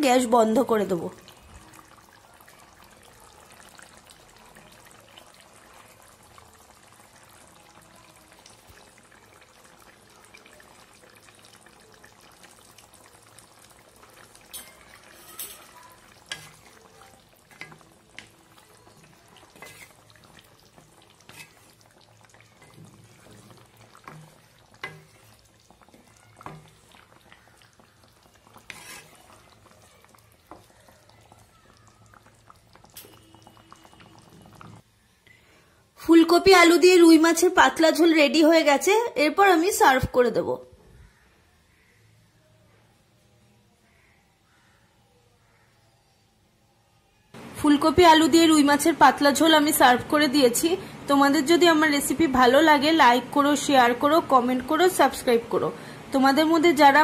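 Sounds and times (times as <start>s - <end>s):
curry simmering in a wok: 0.0s - 38.9s, 41.0s - 57.0s
spatula tapping and scraping pan: 16.3s - 16.8s, 19.5s - 20.0s, 22.6s - 25.4s, 28.6s - 29.4s.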